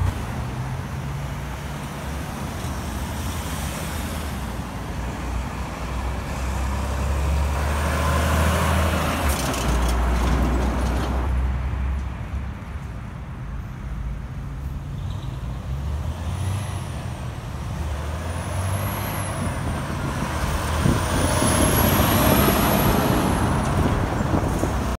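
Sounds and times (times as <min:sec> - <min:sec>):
car traffic: 0:00.0 - 0:25.0
truck diesel engine passing: 0:03.0 - 0:11.5, 0:15.4 - 0:25.0.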